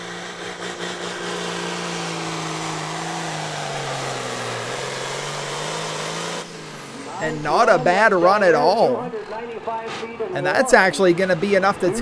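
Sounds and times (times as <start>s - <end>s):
tractor engine running flat out: 0.0s - 8.7s.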